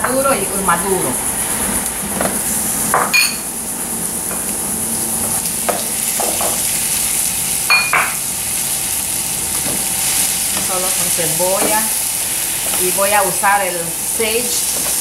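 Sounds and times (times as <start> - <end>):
food sizzling in frying pan: 0.0 - 15.0
sharp ringing clink: 3.1 - 3.5, 7.7 - 8.1.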